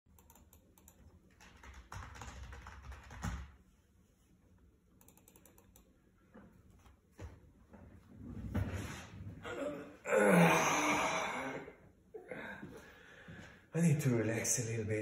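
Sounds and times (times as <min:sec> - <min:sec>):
mouse and keyboard clicking: 0:05.0 - 0:05.9.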